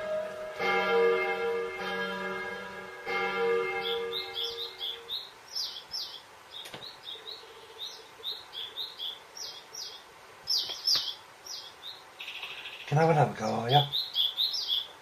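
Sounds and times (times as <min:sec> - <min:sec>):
electronic organ note: 0:00.0 - 0:05.1
small bird chirping: 0:03.8 - 0:15.0.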